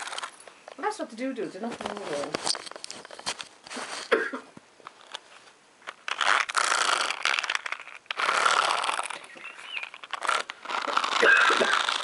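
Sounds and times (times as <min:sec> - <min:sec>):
rustling scrapes against camera: 0:01.5 - 0:04.2, 0:04.9 - 0:12.0.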